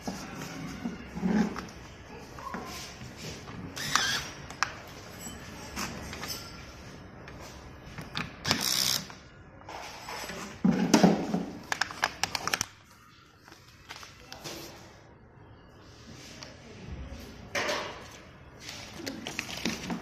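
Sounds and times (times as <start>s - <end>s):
plastic pouches rustling: 18.6s - 20.0s.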